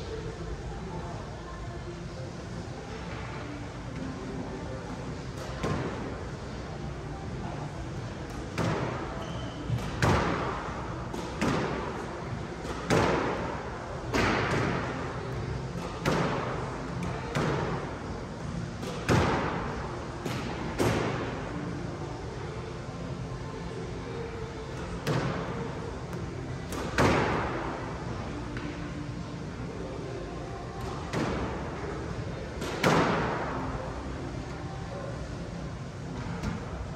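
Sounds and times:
squash racket striking ball: 8.3 - 12.0, 12.6 - 13.5, 15.8 - 16.5, 26.7 - 27.7, 32.6 - 33.5.

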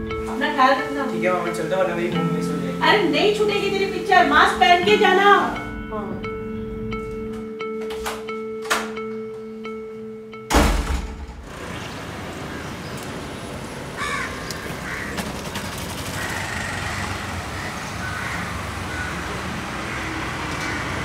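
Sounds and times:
road traffic: 0.0 - 21.0
crows cawing: 12.4 - 12.9, 13.9 - 21.0
motorcycle engine running: 14.1 - 20.4.

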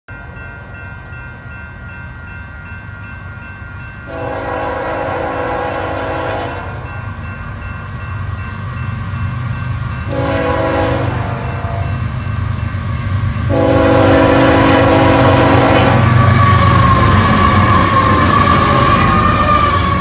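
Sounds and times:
locomotive rumble: 0.1 - 20.0
railroad crossing bell ringing: 0.1 - 20.0
train horn blast: 4.1 - 6.9, 10.1 - 12.0, 13.5 - 16.4.

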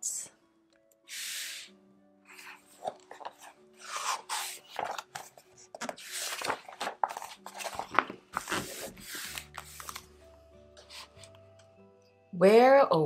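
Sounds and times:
soft background music: 0.0 - 13.0
book pages rustling: 2.3 - 11.6.

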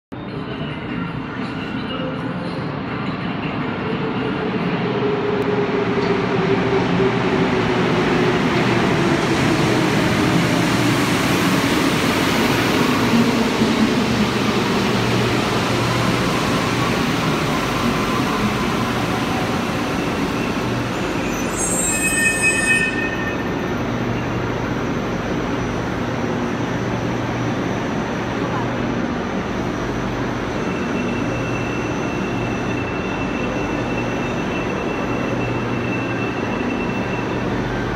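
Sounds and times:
high-pitched train squeal: 15.8 - 25.8, 30.4 - 37.9.

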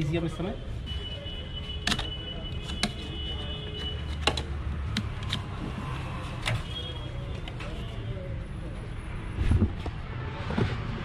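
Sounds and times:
connector clicks and metal knocks: 1.8 - 3.1, 4.1 - 5.6.

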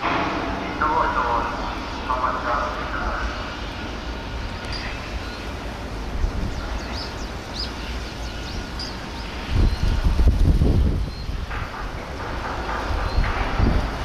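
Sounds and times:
wind buffeting microphone: 3.2 - 14.0.

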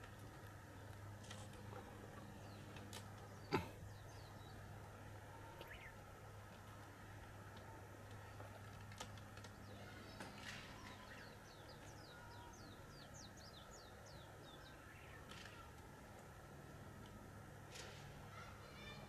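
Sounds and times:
low steady hum: 0.0 - 19.0
small bird singing: 2.2 - 4.8, 5.4 - 6.0, 9.6 - 15.7.

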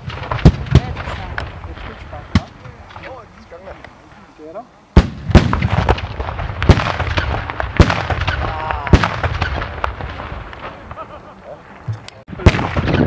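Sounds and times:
salute guns firing bangs: 0.0 - 3.2, 5.0 - 11.0, 12.4 - 13.0.

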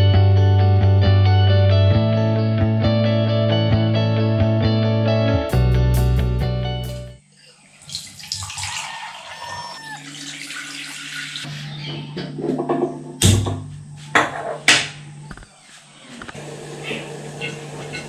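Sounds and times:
water running: 7.2 - 11.7, 16.4 - 18.0.

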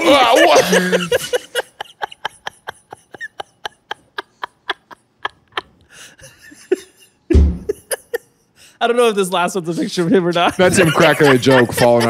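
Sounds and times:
person laughing breathlessly: 0.4 - 7.0.

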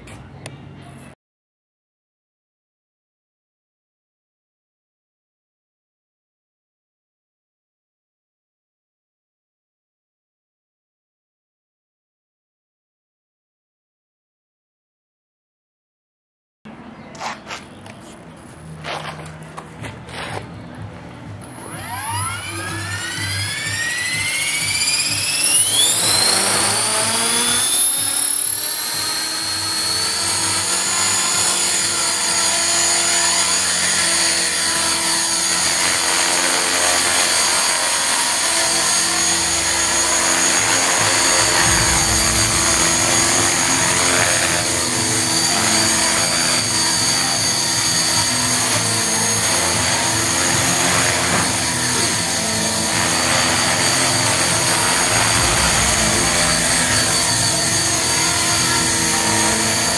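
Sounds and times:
rc helicopter rotor whine: 21.4 - 59.9.

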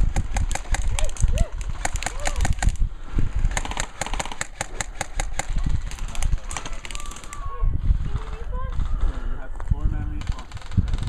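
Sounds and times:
airsoft rifles firing bursts: 0.0 - 2.8, 3.4 - 7.4, 10.2 - 11.0.

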